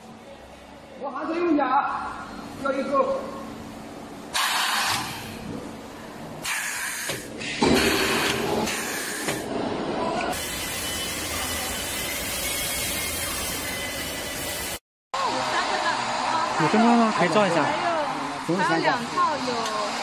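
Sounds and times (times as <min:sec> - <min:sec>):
machine hissing: 0:04.3 - 0:05.4, 0:06.4 - 0:09.5, 0:10.3 - 0:14.8.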